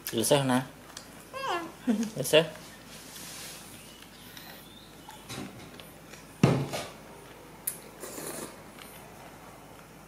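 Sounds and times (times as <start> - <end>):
thump on table: 6.4 - 6.9
noodle slurping: 8.0 - 8.6.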